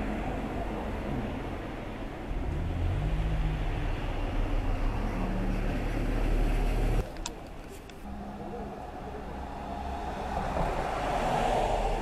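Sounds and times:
engine rumble: 0.0s - 12.0s.

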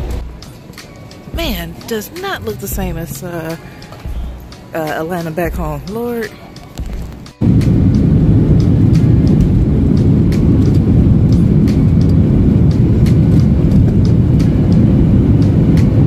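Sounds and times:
jet engine rumble: 6.8s - 16.0s.

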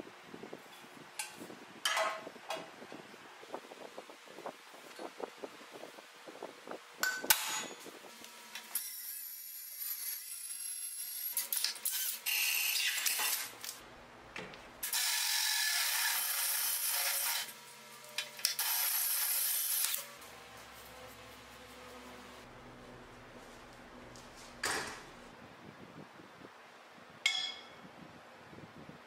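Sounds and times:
scraping and rubbing noise: 20.0s - 25.4s.

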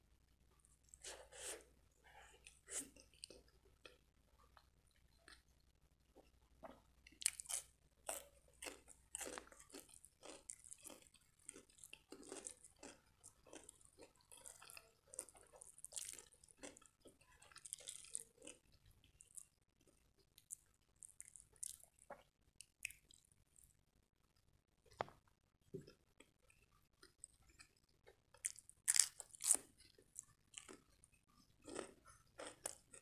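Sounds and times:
crunching and chewing cucumber: 6.6s - 23.2s, 25.9s - 33.0s.

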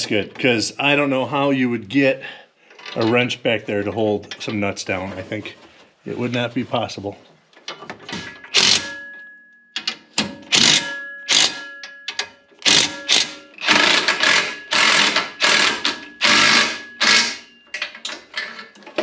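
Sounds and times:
metal frame ringing: 8.2s - 13.6s
ratchet wrench clicking: 8.5s - 8.9s, 10.5s - 11.6s, 12.6s - 17.4s.

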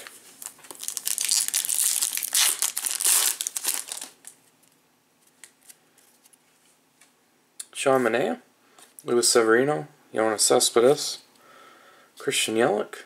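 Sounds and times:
foil wrapper tearing and crinkling: 0.0s - 4.4s.

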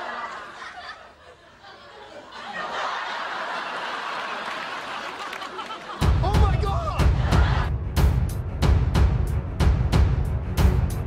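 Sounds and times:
studio audience laughing: 0.0s - 6.3s, 7.0s - 7.7s.

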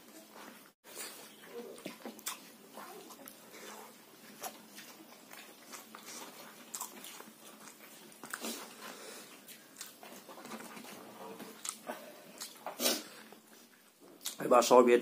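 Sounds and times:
wet chewing and lip smacking: 0.9s - 14.4s.

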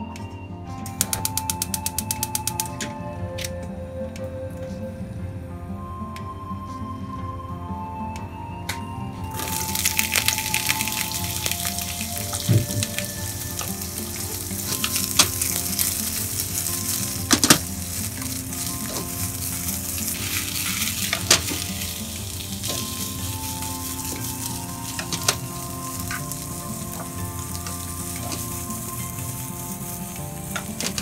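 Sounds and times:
food sizzling in frying pan: 9.3s - 31.0s.

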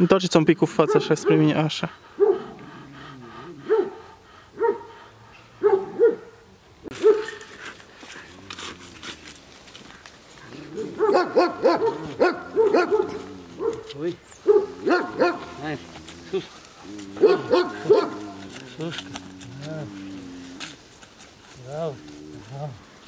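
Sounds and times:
dog barking: 0.8s - 1.6s, 2.2s - 2.6s, 3.6s - 4.0s, 4.6s - 5.0s, 5.6s - 7.4s, 11.0s - 15.6s, 17.2s - 18.3s.

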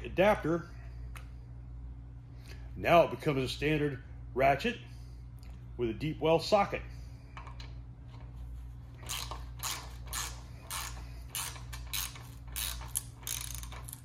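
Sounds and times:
ratchet clicking: 9.0s - 14.0s.

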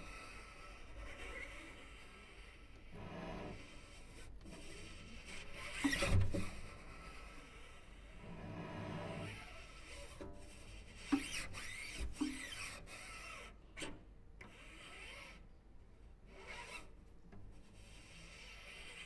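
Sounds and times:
bow scraping cello: 0.0s - 13.9s.

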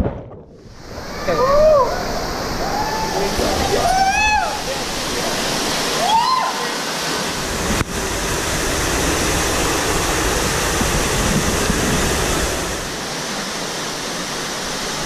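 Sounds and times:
low rumble: 0.0s - 1.0s
waterfall rushing: 0.6s - 15.0s
fast-flowing stream: 0.7s - 15.0s.

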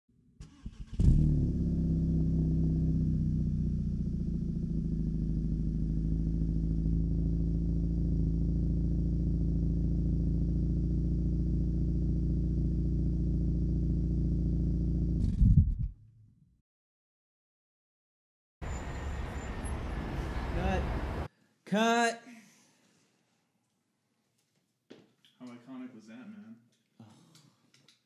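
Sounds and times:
car engine idling: 1.6s - 15.1s.

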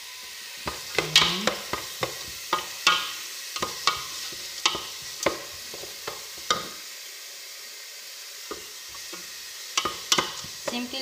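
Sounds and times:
onions sizzling in a pot: 0.0s - 11.0s
spoon knocking against pot: 0.6s - 6.7s, 8.5s - 10.9s.

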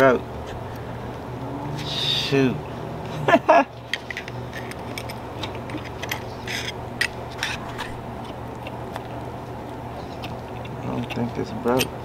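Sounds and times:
steady low hum: 0.0s - 12.0s
metallic clicks and scrapes: 3.8s - 9.1s.

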